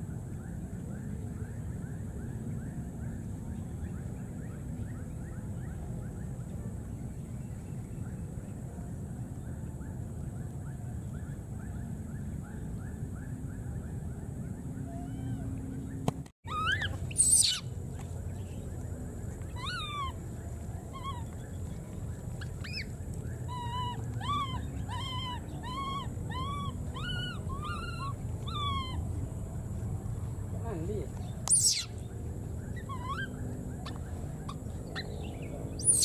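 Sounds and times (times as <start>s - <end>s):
monkey coo calls: 14.9s - 15.6s, 16.5s - 17.7s, 19.5s - 20.2s, 20.9s - 21.4s, 22.4s - 29.1s, 31.5s - 32.0s, 32.8s - 35.2s, 35.8s - 36.0s
monkey shrill cry: 16.5s - 17.7s, 19.6s - 20.2s, 22.6s - 22.9s, 23.5s - 29.0s, 31.5s - 31.9s, 32.8s - 34.0s, 35.8s - 36.0s
faint quick chirps: 31.5s - 32.0s.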